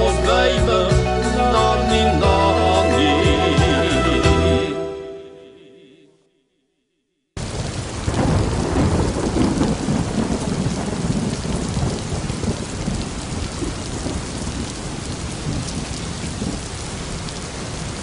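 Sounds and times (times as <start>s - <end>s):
heavy rain: 7.4s - 18.0s
thunder rumbling: 7.4s - 18.0s.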